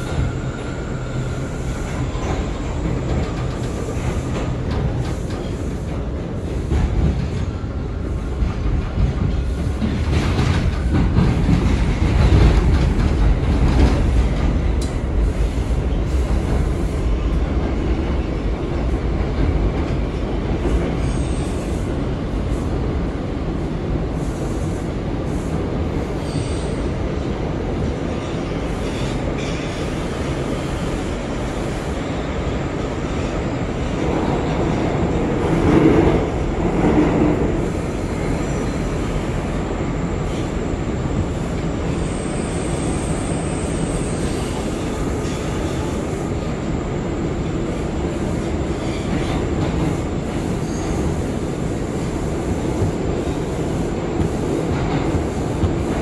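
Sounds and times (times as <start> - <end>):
subway train wheels rumbling: 0.0 - 56.0
clicks of wheels on rail: 1.8 - 15.1, 54.2 - 56.0.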